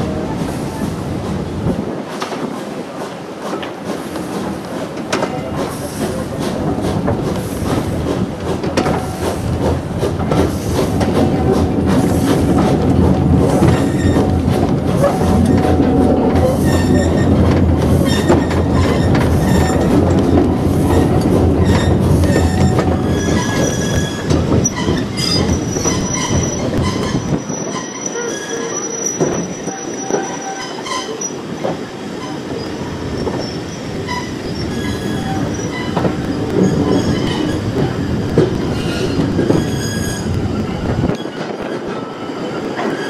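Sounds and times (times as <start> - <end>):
train wheels rumbling on rails: 0.0 - 43.0
wheel squeal: 13.6 - 14.4, 16.4 - 43.0.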